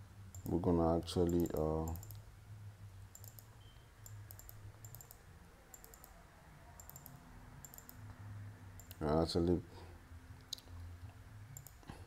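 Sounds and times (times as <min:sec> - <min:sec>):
low steady hum: 0:00.0 - 0:12.0
computer mouse clicks: 0:00.3 - 0:00.6, 0:01.3 - 0:02.2, 0:03.1 - 0:06.2, 0:06.8 - 0:08.2, 0:08.8 - 0:09.0, 0:11.6 - 0:12.0.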